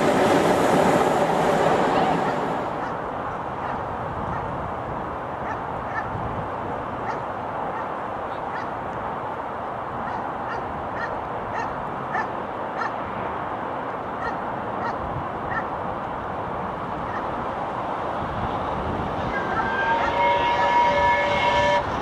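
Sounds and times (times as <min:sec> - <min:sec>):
distant steam locomotive rushing: 0:00.0 - 0:04.5, 0:16.9 - 0:22.0.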